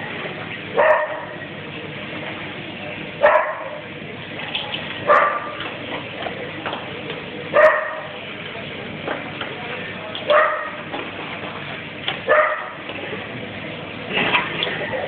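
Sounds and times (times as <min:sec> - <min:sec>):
dog barking: 0:00.8 - 0:01.4, 0:03.2 - 0:03.8, 0:05.1 - 0:05.6, 0:07.6 - 0:08.2, 0:10.3 - 0:10.8, 0:12.3 - 0:12.8.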